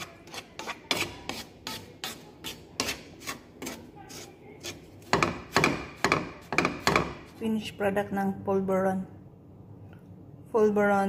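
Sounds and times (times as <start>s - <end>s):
wooden spatula scraping pan: 0.0s - 7.4s.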